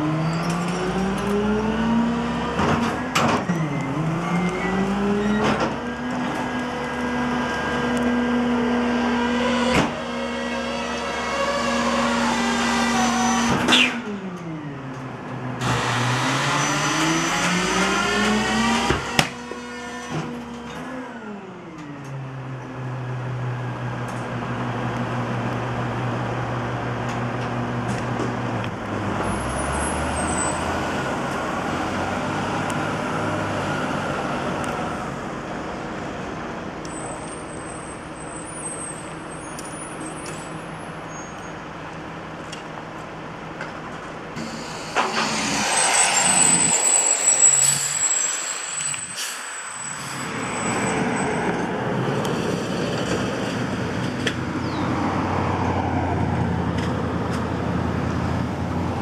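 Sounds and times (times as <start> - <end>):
garbage truck diesel engines: 0.0 - 59.0
rush of noise with high whine: 44.4 - 54.0.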